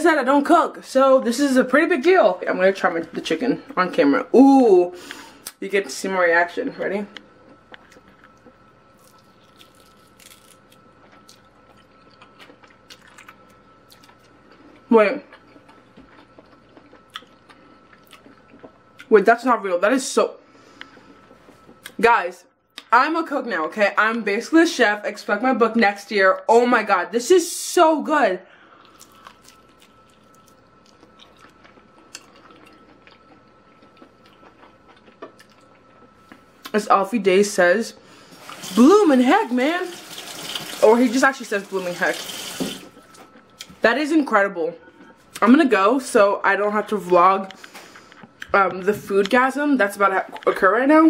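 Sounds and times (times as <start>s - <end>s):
person chewing chicken: 7.4s - 19.1s, 28.7s - 36.7s, 47.5s - 48.5s.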